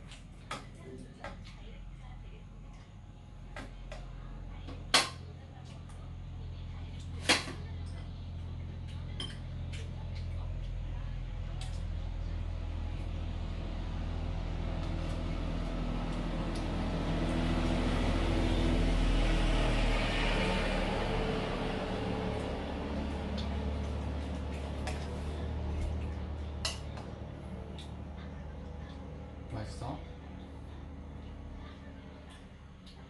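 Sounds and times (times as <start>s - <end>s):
steady low hum: 0.0s - 33.0s
vehicle engine passing by: 11.9s - 32.8s.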